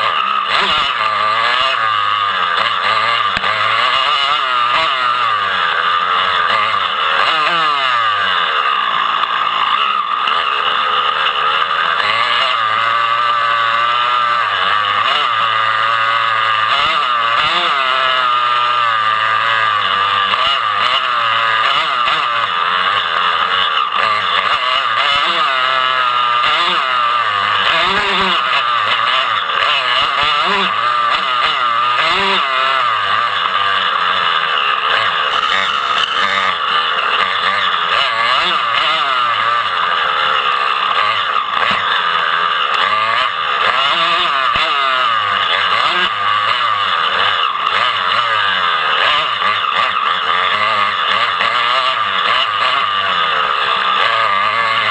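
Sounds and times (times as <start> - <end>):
dirt bike engines revving: 0.0 - 54.9.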